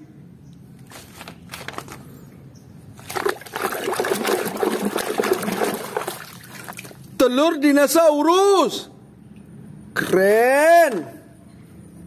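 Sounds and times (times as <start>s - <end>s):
hand sloshing in muddy water: 3.0s - 7.2s.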